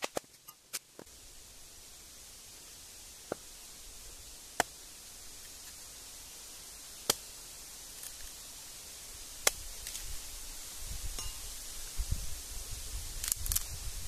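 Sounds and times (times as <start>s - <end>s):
hatchet chopping wood: 7.0s - 7.2s.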